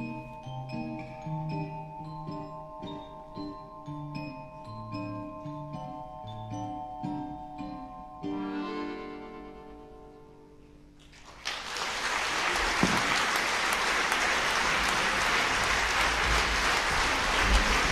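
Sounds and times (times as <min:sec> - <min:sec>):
audience applause: 0:11.1 - 0:17.9.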